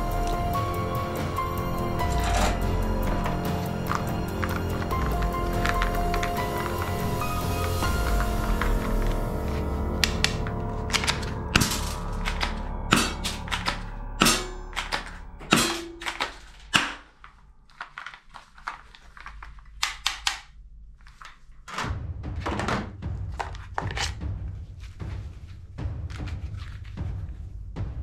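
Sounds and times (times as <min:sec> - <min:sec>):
background music: 0:00.0 - 0:17.2, 0:21.2 - 0:28.0
plastic toy guns clacking: 0:10.0 - 0:17.1, 0:17.7 - 0:20.5.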